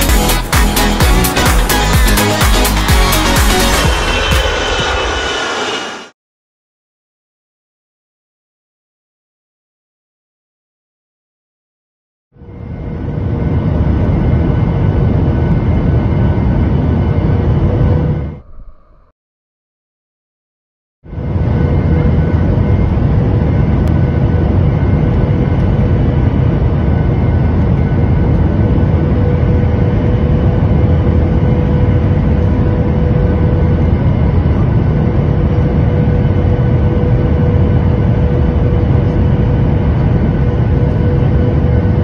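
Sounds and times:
airflow rush and jet engines: 1.8 - 6.2
steady tone: 12.5 - 19.2.

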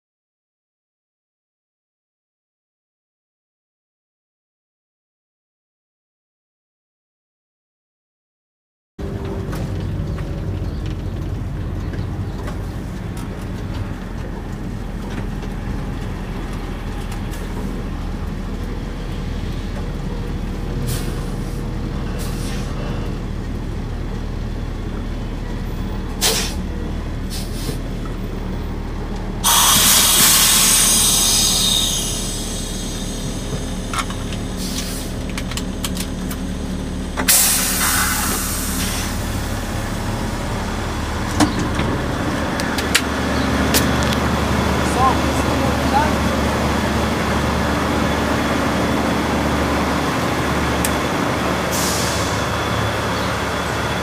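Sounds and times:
diesel engine idling: 9.0 - 54.0
air brake hiss: 20.9 - 21.6, 22.2 - 22.9, 26.2 - 26.6, 27.3 - 27.8, 29.4 - 33.9, 34.5 - 35.2, 37.3 - 39.4, 51.7 - 52.4.

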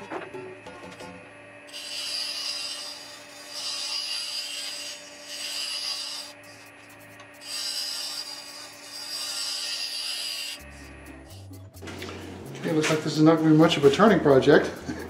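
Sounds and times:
lathe hum: 0.0 - 12.9
scraper shaving wood on lathe: 1.7 - 10.6.

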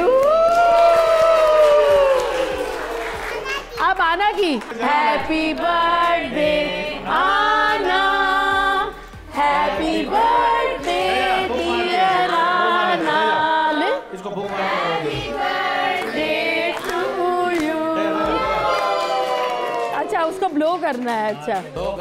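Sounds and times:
group of voices singing: 4.7 - 19.0.

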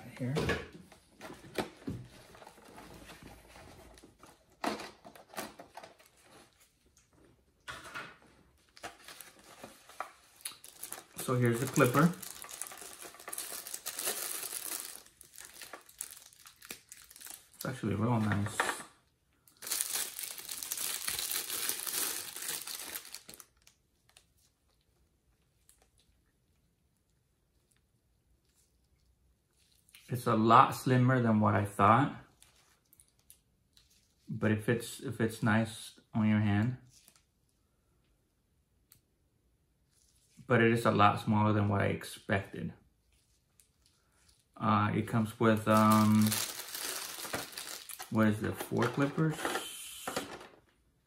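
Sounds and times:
plastic packaging rustling: 8.5 - 18.8, 19.5 - 24.5, 45.5 - 50.8
plastic bag crinkling: 8.7 - 18.5, 19.5 - 24.2, 45.5 - 50.6.

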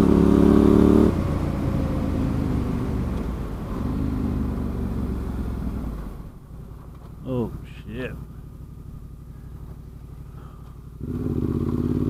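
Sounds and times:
motorcycle engine pulling under throttle: 8.2 - 12.0.

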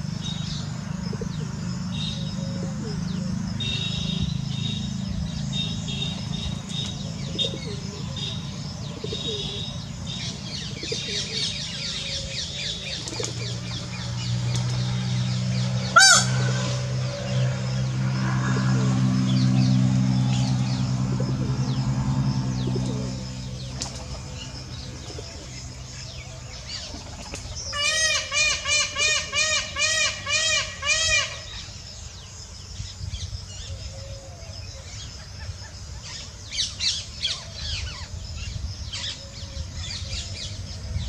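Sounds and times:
small birds chirping: 0.0 - 41.0.

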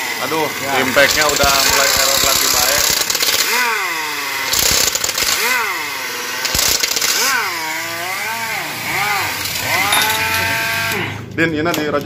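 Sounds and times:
impact wrench motor whining: 0.0 - 11.3
man talking: 0.2 - 2.9
impact wrench hammering: 0.8 - 7.6, 9.3 - 11.0.

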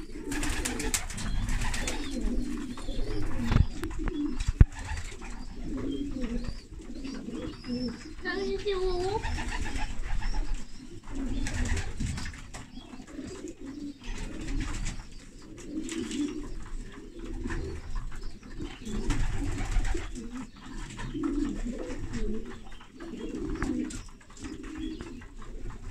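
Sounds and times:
pigeons cooing: 0.0 - 25.9.

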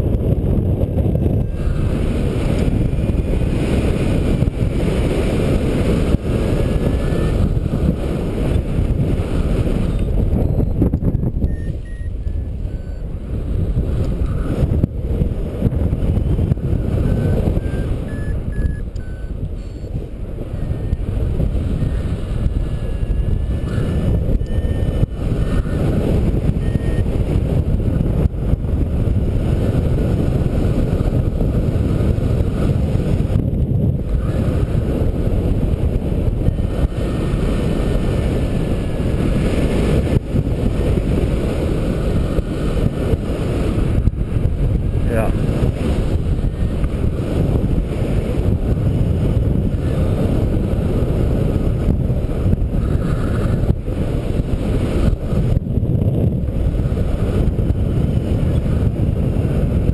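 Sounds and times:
wind rushing over microphone: 0.0 - 59.9
high electronic beeps: 6.9 - 7.4, 10.6 - 13.1, 17.0 - 21.0, 21.7 - 25.6, 26.6 - 27.1.

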